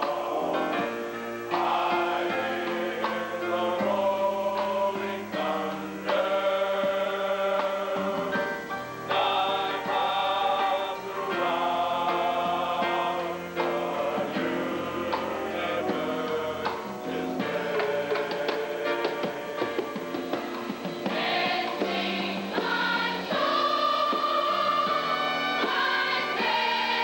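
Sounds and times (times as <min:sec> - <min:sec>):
mass choir singing a hymn: 0:00.0 - 0:27.0.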